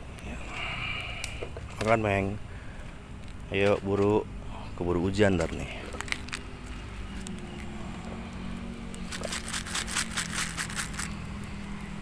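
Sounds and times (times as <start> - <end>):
low engine hum: 0.0 - 12.0
crackling clicks: 3.2 - 4.1, 5.9 - 11.7.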